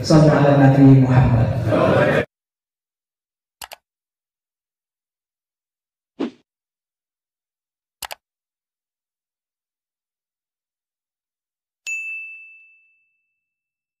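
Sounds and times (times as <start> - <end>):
quick clicks: 3.6 - 3.8, 8.0 - 8.2
bright bell ding: 11.9 - 13.6.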